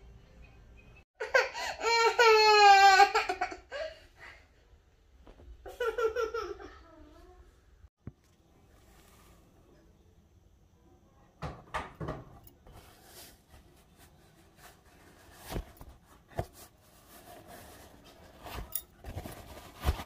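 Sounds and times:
handling knocks and rustles: 11.8 - 20.0.

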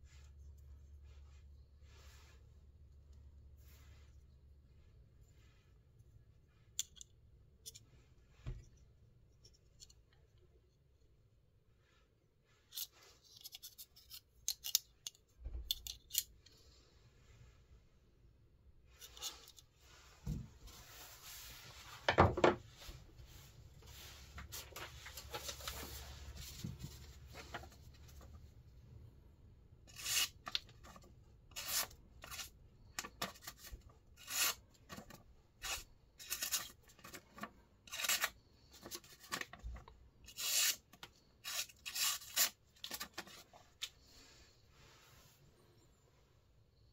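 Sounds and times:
paper being handled: 22.8 - 28.4
knife cutting paper: 29.9 - 39.7, 40.3 - 43.4.

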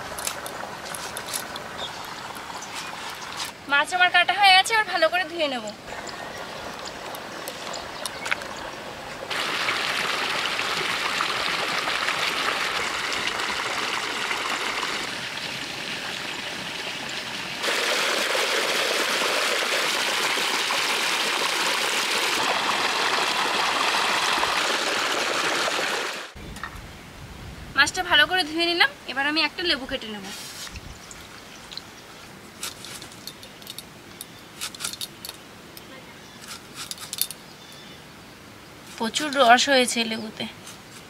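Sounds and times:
water gushing into pool: 5.9 - 26.4.

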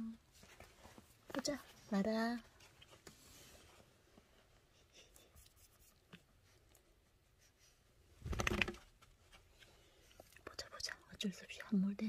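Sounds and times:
fabric cat bed rustling: 0.3 - 4.6.

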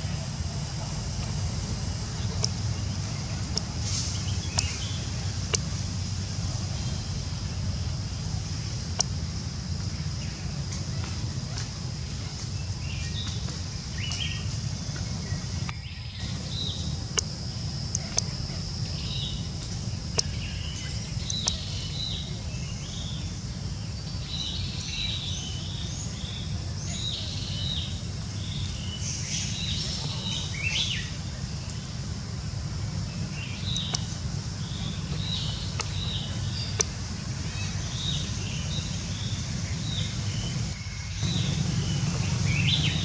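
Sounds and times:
birds chirping: 0.0 - 43.0
high hum: 0.0 - 43.0
sharp clicks: 15.6 - 22.1, 33.7 - 34.2.

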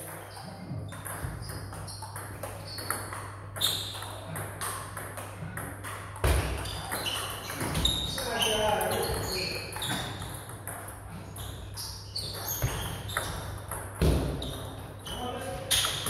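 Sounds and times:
table tennis balls clicking: 0.0 - 11.1.

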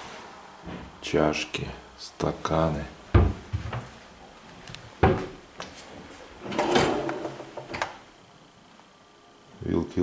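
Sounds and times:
cupboard door knocking shut: 3.1 - 3.8, 5.0 - 5.3
drawer sliding open with scrape: 6.4 - 7.4.

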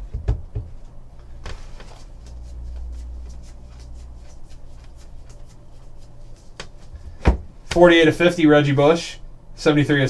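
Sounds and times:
trading cards flipped by hand: 1.5 - 6.9.

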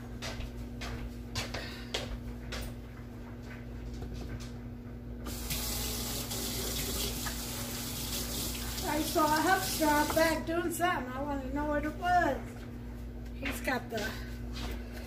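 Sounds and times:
tap water running into sink: 5.3 - 10.4.

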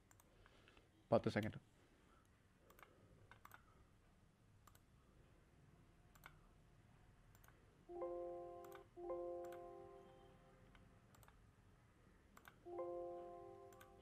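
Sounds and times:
computer mouse clicks: 0.0 - 0.8, 2.6 - 3.7, 4.6 - 4.9, 6.1 - 6.5, 7.3 - 7.6, 8.6 - 9.6, 10.7 - 11.4, 12.3 - 12.6, 13.7 - 14.0
computer alert chime: 7.9 - 10.5.

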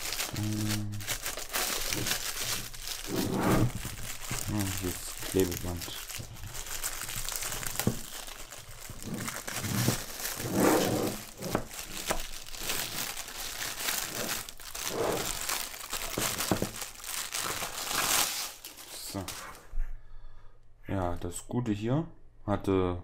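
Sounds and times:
plastic bag crinkling: 0.0 - 19.5.

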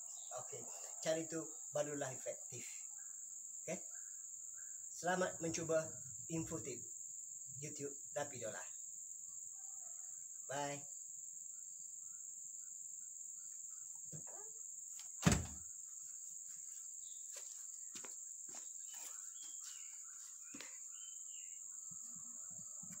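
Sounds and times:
insects chirring: 0.0 - 23.0
loud thump: 15.2 - 15.6.

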